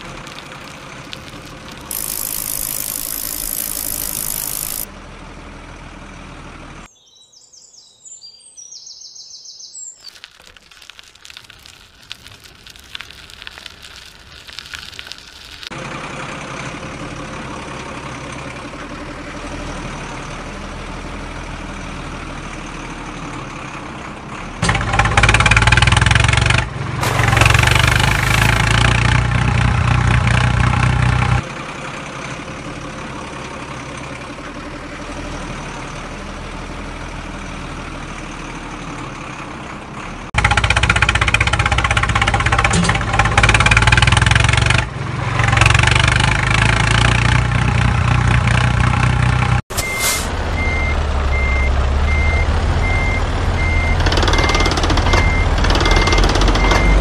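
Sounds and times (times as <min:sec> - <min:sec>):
motor vehicle engine running: 0:00.0 - 0:06.9, 0:10.2 - 0:57.0
faint crackling clicks: 0:10.1 - 0:15.7.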